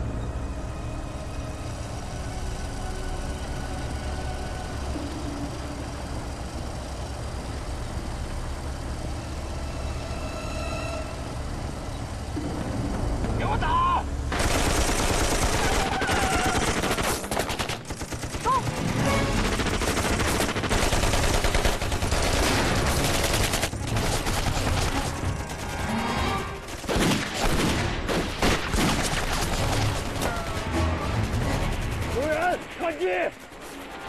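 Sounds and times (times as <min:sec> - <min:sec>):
automatic gunfire bursts: 0:14.3 - 0:25.5.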